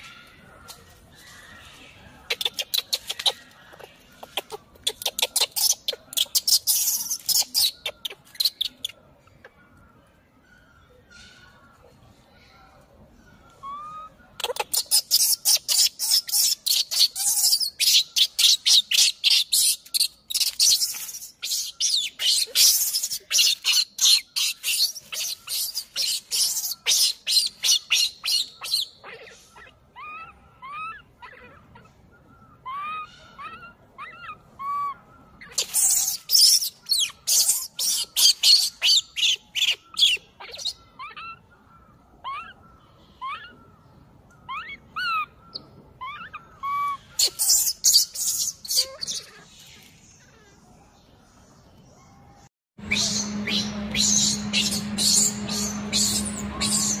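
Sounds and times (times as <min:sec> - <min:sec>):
infant monkey screaming: 0:13.6 - 0:32.0, 0:32.6 - 0:43.7, 0:44.5 - 0:50.7, 0:52.9 - 0:57.0.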